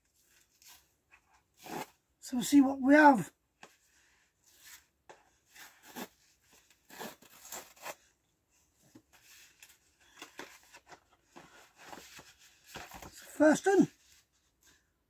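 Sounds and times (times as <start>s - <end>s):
cardboard envelope tearing: 6.9s - 8.1s.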